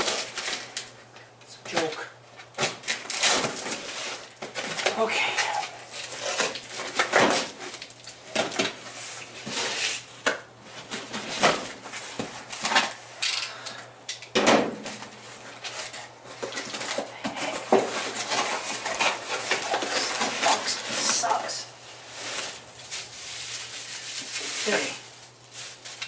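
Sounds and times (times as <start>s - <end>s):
cardboard box being unpacked: 0.0s - 0.9s, 2.6s - 10.1s, 15.0s - 26.0s.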